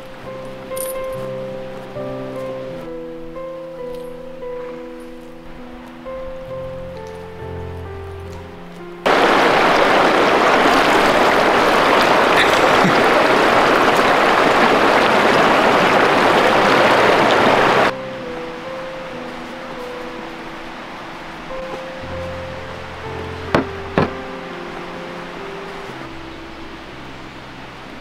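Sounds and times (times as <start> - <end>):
river rushing over stones: 0.0 - 7.2, 9.0 - 28.0
background music: 0.0 - 9.9, 14.3 - 28.0
slow instrumental melody: 0.0 - 10.0, 15.8 - 28.0
sustained low chord: 14.3 - 28.0.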